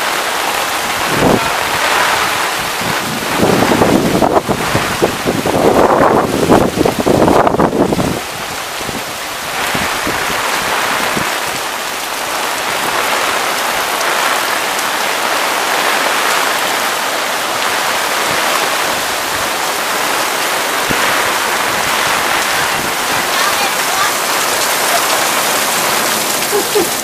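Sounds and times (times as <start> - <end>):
floodwater rushing: 0.0 - 27.0
heavy rain hissing: 0.0 - 27.0.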